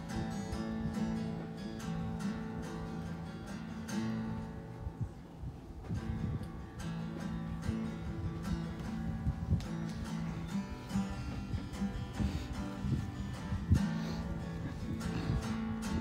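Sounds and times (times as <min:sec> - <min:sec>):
acoustic guitar strumming chords: 0:00.0 - 0:16.0.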